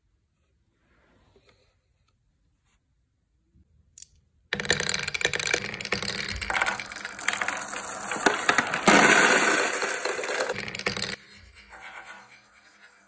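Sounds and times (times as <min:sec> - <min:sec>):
marbles rattling down wooden ramp: 0:04.6 - 0:13.0.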